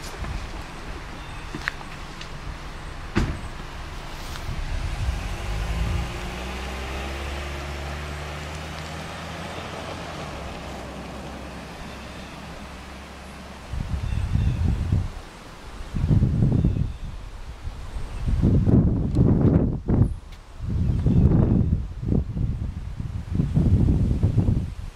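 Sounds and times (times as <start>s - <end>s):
car driving off: 0.0s - 15.4s.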